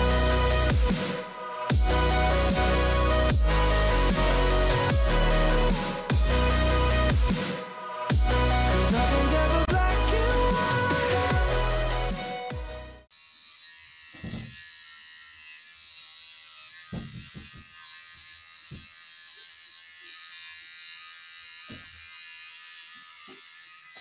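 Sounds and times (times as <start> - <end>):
background music: 0.0 - 13.1
electric hair clippers buzzing: 0.0 - 24.0.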